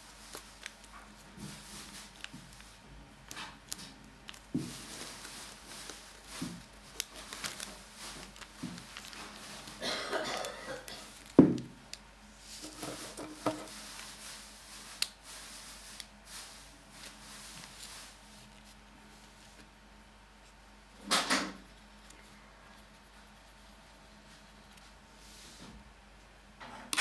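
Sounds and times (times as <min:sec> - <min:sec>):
paper scrape or rustle: 0:00.1 - 0:09.8, 0:12.4 - 0:19.7.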